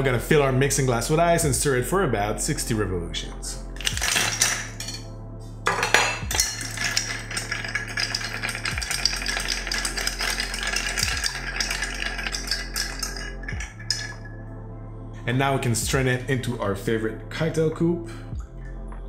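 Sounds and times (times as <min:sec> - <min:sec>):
ice cubes clattering into glass: 0:03.8 - 0:05.0, 0:05.7 - 0:14.3
bar spoon stirring ice: 0:06.3 - 0:14.3.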